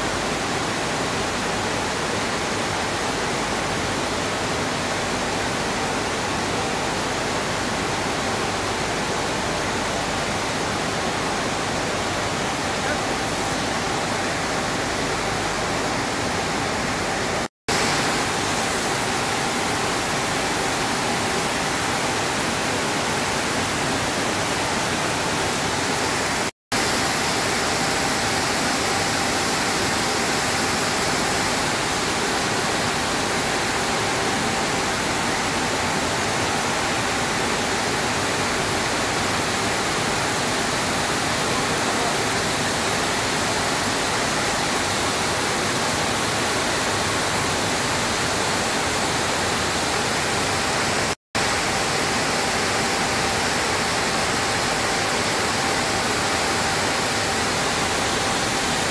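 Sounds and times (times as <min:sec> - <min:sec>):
milling machinery running: 0:11.4 - 0:46.4.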